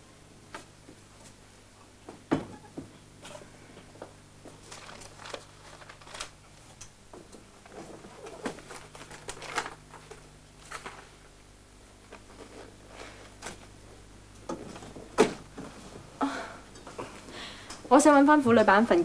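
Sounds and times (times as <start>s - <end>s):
steady low hum: 0.0s - 19.0s
paper rustling: 4.5s - 6.8s, 7.6s - 11.3s.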